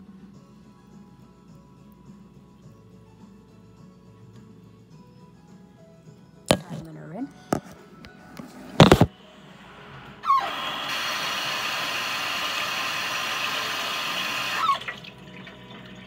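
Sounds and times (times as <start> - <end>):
tap water running: 10.3 - 16.0.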